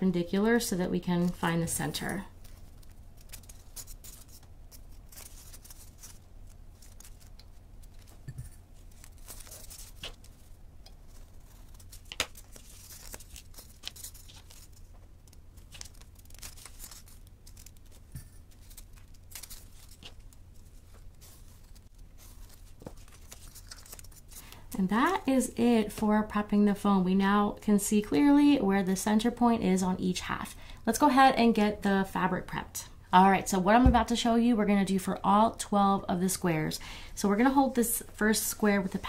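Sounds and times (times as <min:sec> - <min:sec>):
handling scrapes and rustles: 0:01.2 - 0:24.6.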